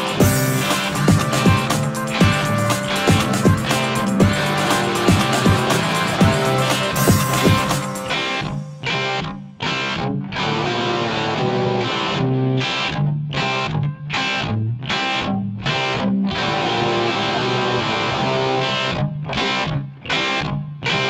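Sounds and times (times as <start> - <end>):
bass line: 0.0 - 8.8
distorted electric guitar: 0.0 - 21.0.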